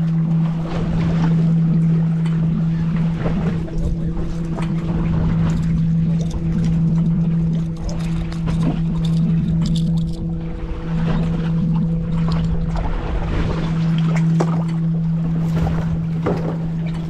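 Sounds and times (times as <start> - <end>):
boat engine humming: 0.0 - 17.0.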